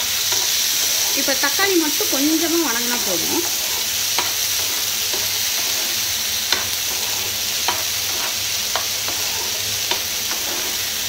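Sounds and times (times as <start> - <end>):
vegetables sizzling in hot oil: 0.0 - 11.0
metal spoon clicking on pan: 3.7 - 4.4, 6.5 - 6.8.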